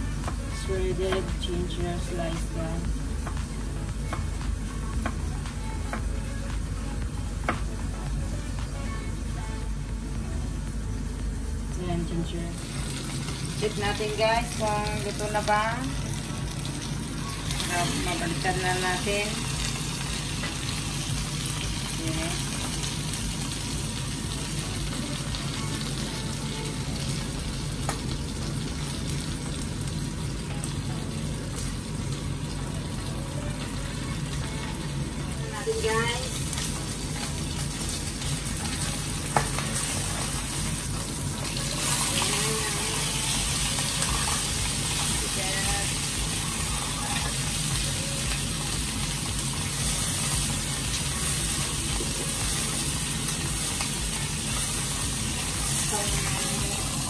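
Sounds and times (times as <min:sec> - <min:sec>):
fish sizzling in hot oil: 0:12.2 - 0:57.0.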